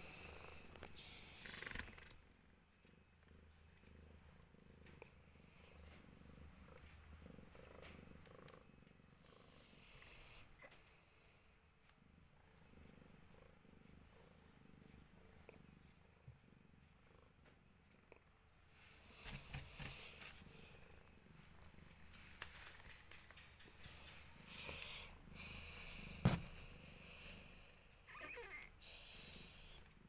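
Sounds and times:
cat purring: 0:00.0 - 0:30.0
rustling and scratching on cloth: 0:18.7 - 0:24.8.

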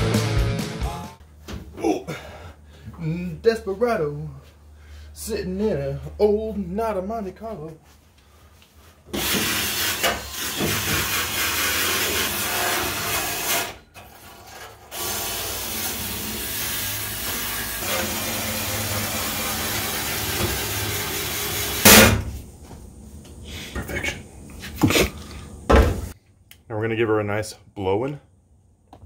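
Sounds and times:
drill wire brush grinding metal: 0:09.1 - 0:22.0.

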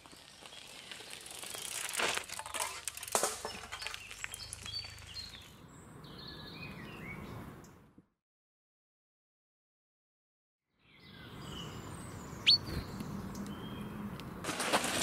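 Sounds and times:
bike tyres rolling on gravel: 0:00.0 - 0:05.6, 0:14.4 - 0:15.0
birds chirping: 0:03.5 - 0:07.8, 0:10.9 - 0:14.2.

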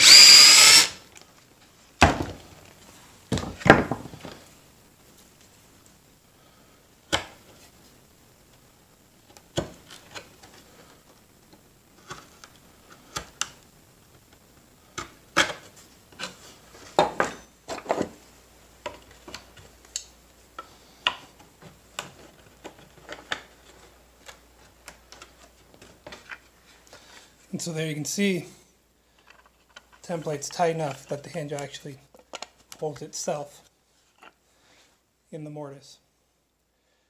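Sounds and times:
chisel cutting wood: 0:00.0 - 0:01.0.

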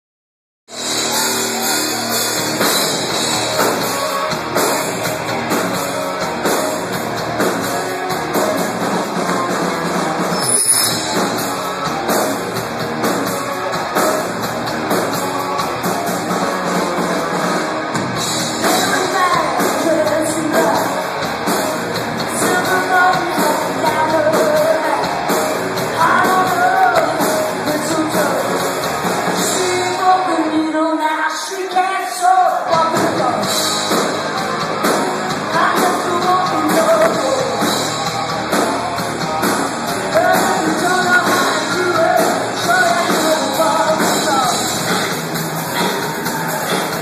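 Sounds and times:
live rock band playing: 0:00.7 - 0:47.0
woman singing: 0:18.6 - 0:21.0, 0:22.2 - 0:25.2, 0:25.9 - 0:28.5, 0:29.4 - 0:33.5, 0:35.4 - 0:37.8, 0:40.1 - 0:44.6.

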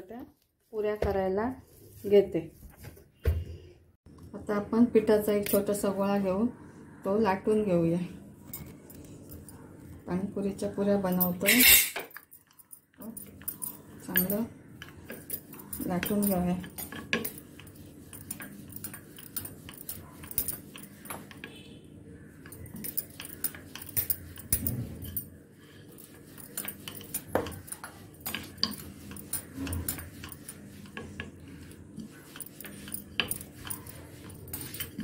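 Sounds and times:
steady low hum: 0:04.1 - 0:11.4.

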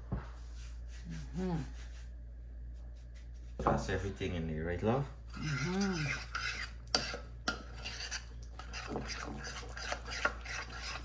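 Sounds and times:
spoon scraping and clinking bowl: 0:05.3 - 0:11.0.

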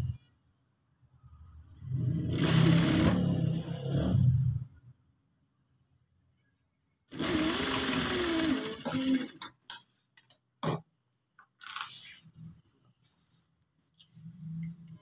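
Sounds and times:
sewing machine stitching: 0:02.0 - 0:04.2, 0:07.1 - 0:09.5.

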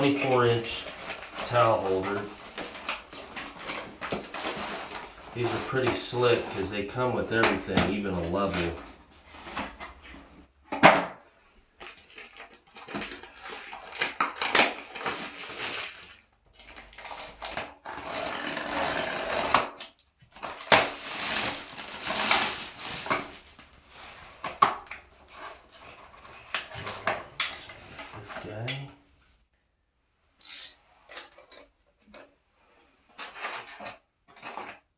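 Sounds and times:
packaging rustling and crinkling: 0:00.0 - 0:06.6, 0:11.7 - 0:26.9.

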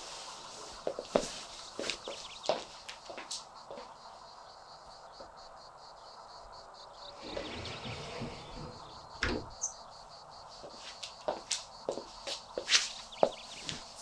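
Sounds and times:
sliding door rolling shut: 0:07.0 - 0:09.7.

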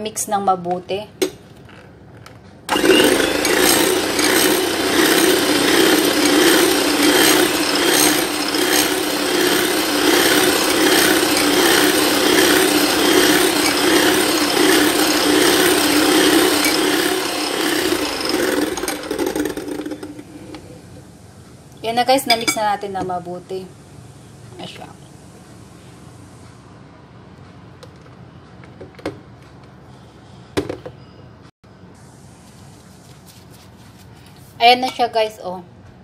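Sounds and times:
electric mixer whipping cream: 0:02.7 - 0:20.3.

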